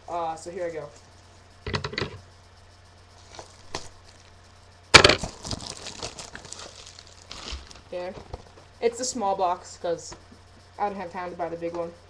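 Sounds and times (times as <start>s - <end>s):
crackling: 3.1s - 8.8s
cardboard ripping tear: 5.0s - 7.9s.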